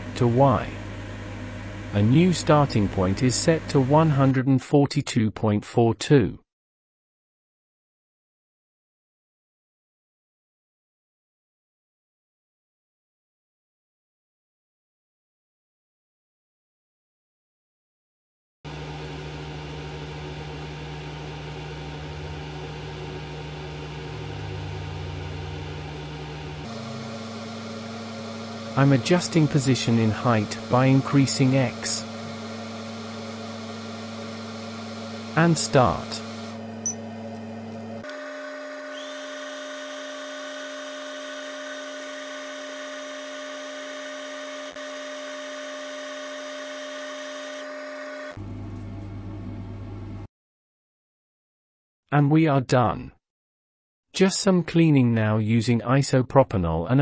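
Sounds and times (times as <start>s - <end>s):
laser engraver humming: 18.7s - 48.7s.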